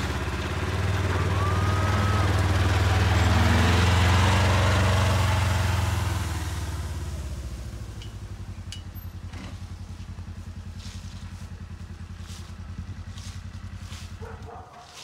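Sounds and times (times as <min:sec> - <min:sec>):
vehicle engine idling: 0:00.0 - 0:15.0
crunching rustles: 0:09.5 - 0:15.0.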